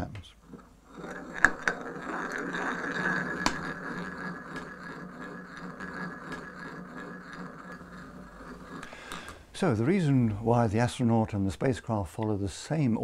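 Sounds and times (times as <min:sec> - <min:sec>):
balls rolling in wooden bowl: 0:00.3 - 0:10.6
sharp clicks of balls: 0:00.5 - 0:09.5.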